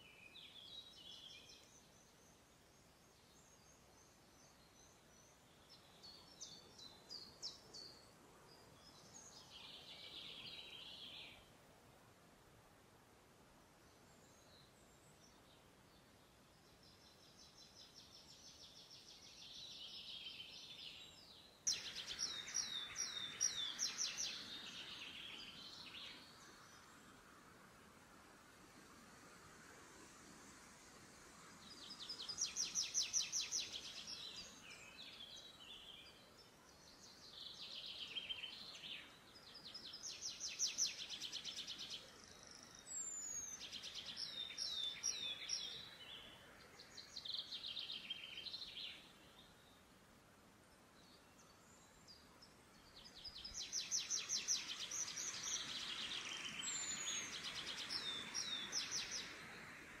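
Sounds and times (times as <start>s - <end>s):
songbirds trilling: 21.7s - 26.9s.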